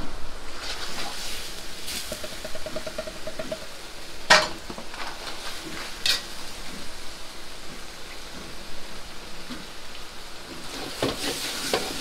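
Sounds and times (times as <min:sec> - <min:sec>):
food sizzling in a wok: 0:00.5 - 0:12.0
rapid ticks: 0:01.9 - 0:04.0
ladle clanking against wok: 0:01.9 - 0:04.8.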